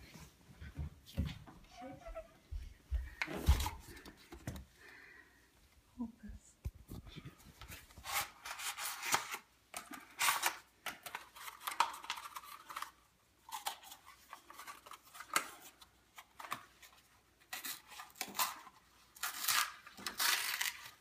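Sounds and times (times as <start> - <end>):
paper rustling and crinkling: 6.9 - 21.0.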